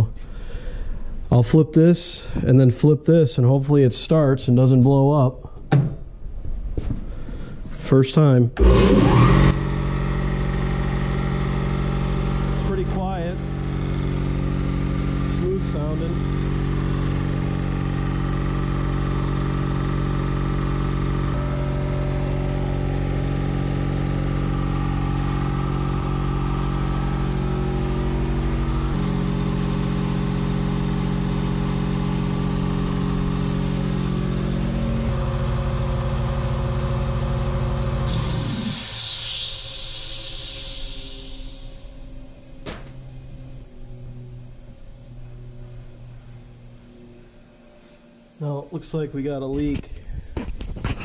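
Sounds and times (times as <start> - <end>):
air compressor running: 8.5 - 51.0
air hissing: 8.6 - 35.7, 38.0 - 43.7.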